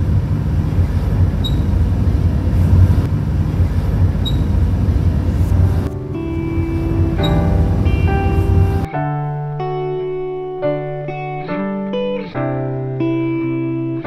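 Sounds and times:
car cabin rumble on wet road: 0.0s - 8.9s
background music: 5.4s - 14.0s.

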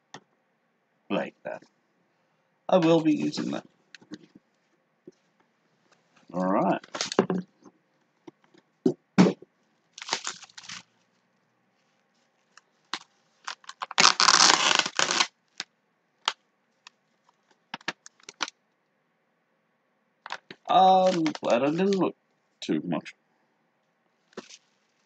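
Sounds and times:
paper packaging rustling: 6.8s - 7.4s, 10.0s - 11.2s, 11.8s - 15.6s, 20.3s - 22.0s, 24.3s - 25.0s
paper sheet unfolding: 10.0s - 10.9s, 13.0s - 15.3s, 21.0s - 22.0s, 24.3s - 24.7s.

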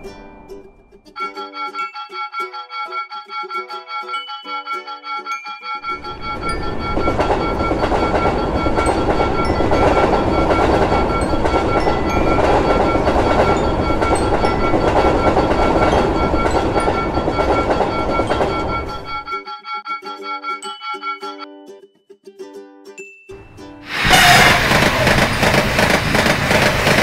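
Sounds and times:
high ringing tones: 0.8s - 21.5s
train wheels on rails: 5.8s - 19.3s, 23.8s - 27.0s.

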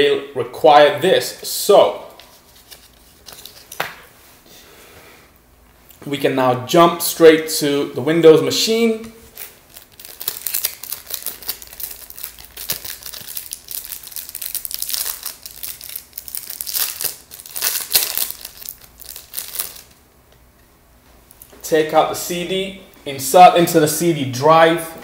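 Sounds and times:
packaging crinkling and rustling: 2.2s - 4.1s, 9.2s - 20.0s.

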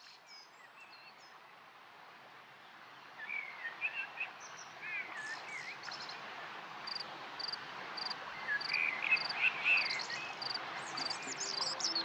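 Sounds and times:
outdoor background hiss: 0.0s - 12.0s
birds singing: 8.6s - 12.0s.

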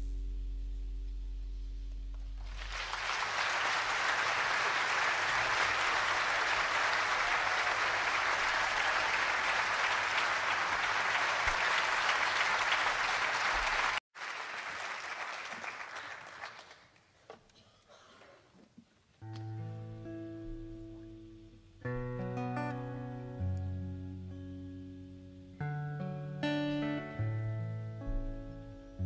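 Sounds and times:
audience applause: 2.4s - 17.1s.

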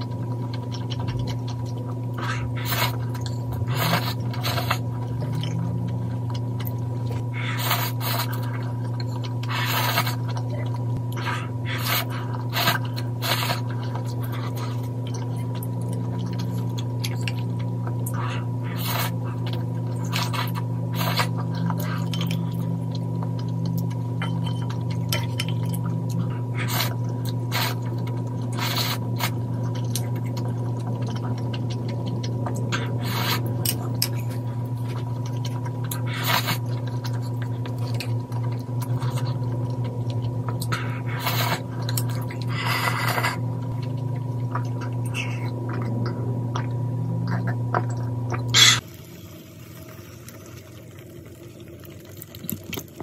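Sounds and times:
chewing: 0.0s - 48.8s, 51.9s - 53.0s
steady low hum: 0.0s - 53.0s
noodles slurped: 2.2s - 5.8s, 7.3s - 10.4s, 11.1s - 15.6s, 18.1s - 22.5s, 26.1s - 39.5s, 40.5s - 45.5s.

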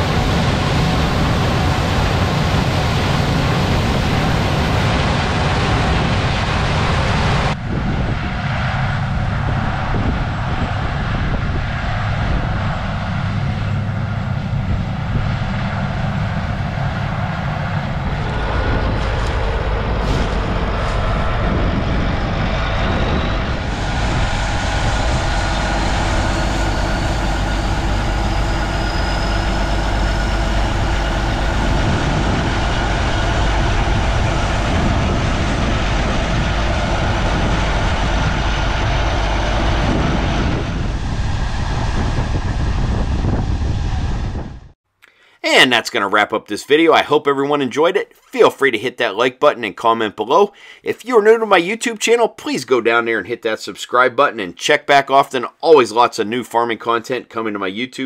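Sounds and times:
tractor diesel engine running: 10.8s - 41.9s.

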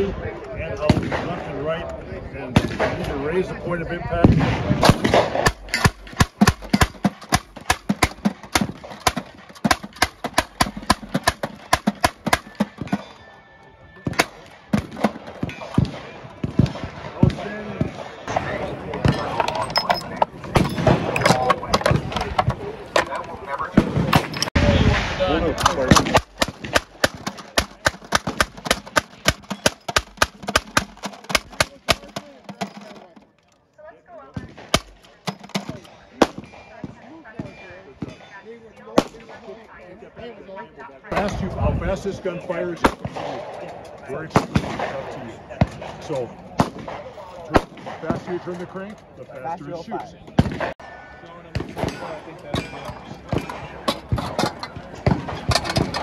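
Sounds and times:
hand-cranked gatling gun firing: 4.8s - 13.0s, 25.6s - 33.3s, 34.7s - 35.8s.

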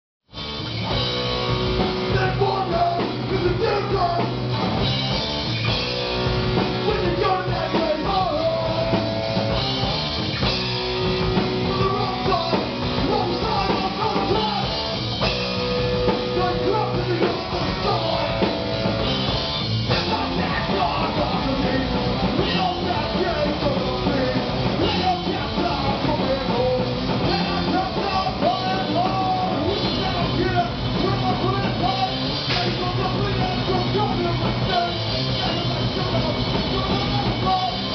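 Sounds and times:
drum kit: 0.3s - 37.9s
electric guitar: 0.3s - 37.9s
person singing into a microphone: 2.1s - 4.4s, 6.8s - 9.0s, 11.6s - 14.8s, 16.2s - 18.5s, 19.9s - 37.9s.

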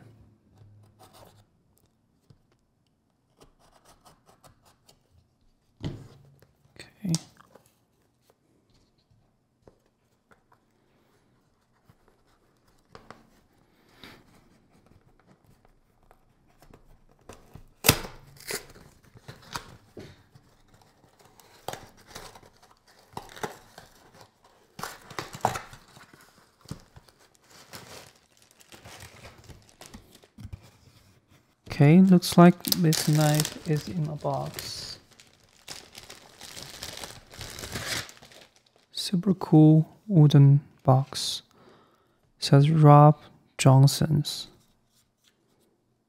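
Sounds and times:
rustling cardboard and plastic wrap: 14.4s - 39.0s
cardboard tearing: 17.7s - 19.7s, 20.6s - 30.4s, 32.4s - 38.9s.

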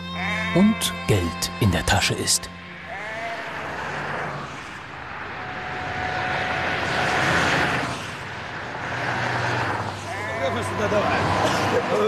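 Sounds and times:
vehicle passing on highway: 2.5s - 12.0s.

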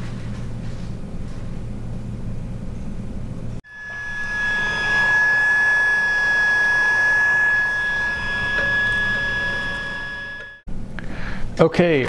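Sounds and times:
heat gun whining: 3.7s - 10.6s.

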